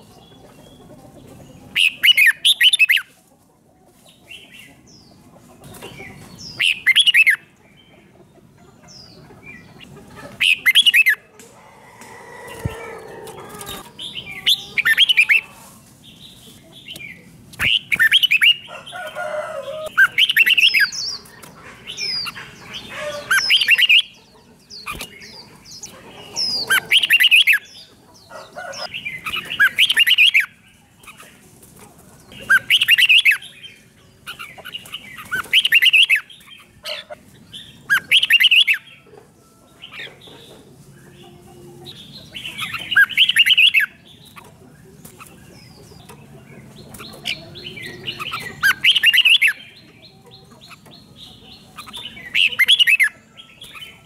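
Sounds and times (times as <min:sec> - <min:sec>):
bird singing chirpy phrases: 0:42.0 - 0:54.0.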